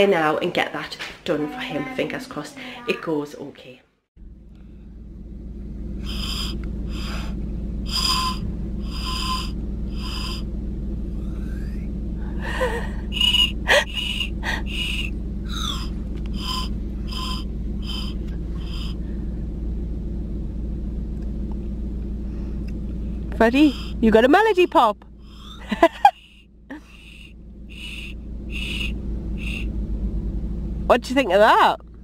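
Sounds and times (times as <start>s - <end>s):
car engine hum inside cabin: 4.2s - 32.0s
breathy whistle toots: 6.0s - 10.5s, 13.1s - 19.1s, 25.2s - 29.8s.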